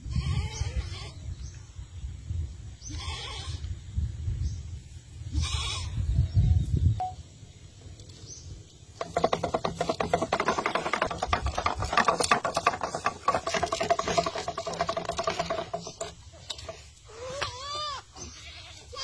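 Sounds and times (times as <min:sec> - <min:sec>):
spool spinning with rattle: 0:09.0 - 0:16.9.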